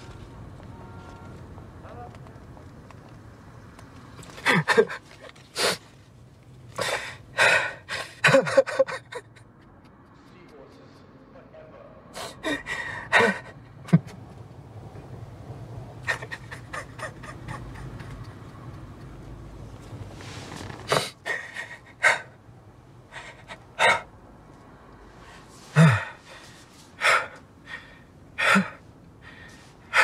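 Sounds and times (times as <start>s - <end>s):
man sobbing: 4.4s - 5.8s, 6.8s - 9.6s, 12.2s - 14.1s, 16.0s - 18.4s, 20.9s - 22.4s, 23.1s - 24.1s, 25.7s - 26.4s, 27.0s - 30.0s.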